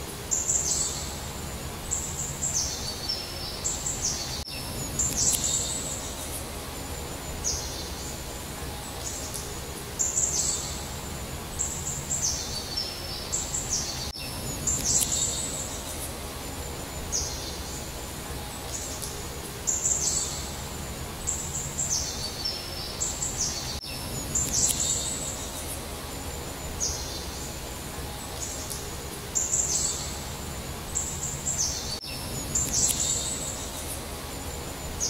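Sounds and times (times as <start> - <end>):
low outdoor background hum: 0.0 - 35.0
songbird singing: 0.0 - 35.0.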